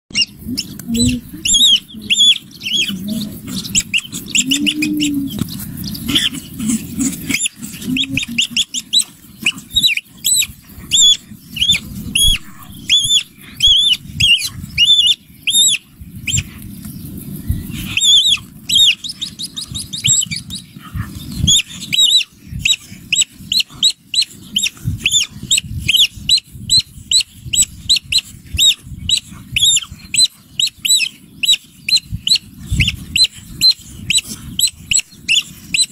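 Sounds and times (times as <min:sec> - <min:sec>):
high-pitched animal squeaks: 0:00.1 - 0:16.5, 0:18.0 - 0:20.6, 0:21.4 - 0:35.9
steady low noise: 0:00.2 - 0:23.5.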